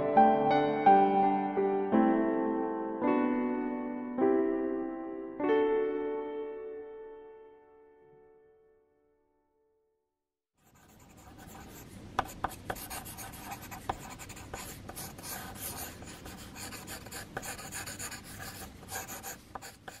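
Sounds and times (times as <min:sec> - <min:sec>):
pencil scratching on paper: 0:10.6 - 0:20.0.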